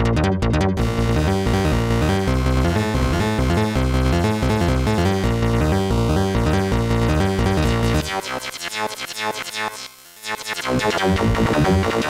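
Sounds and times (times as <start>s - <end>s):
low synth bass: 0.0s - 8.1s, 10.8s - 12.0s
synthesizer electronic melody: 0.0s - 12.0s.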